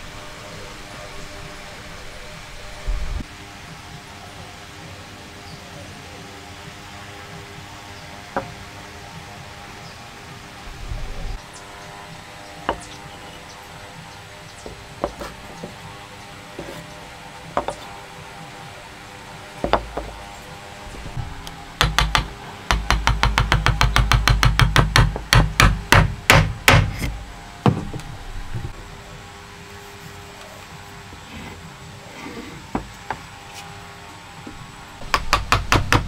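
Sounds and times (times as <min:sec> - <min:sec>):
hammer tapping on wood: 0:17.6 - 0:17.8, 0:21.8 - 0:26.9
wooden pieces knocking on workbench: 0:17.6 - 0:17.8, 0:19.6 - 0:20.2.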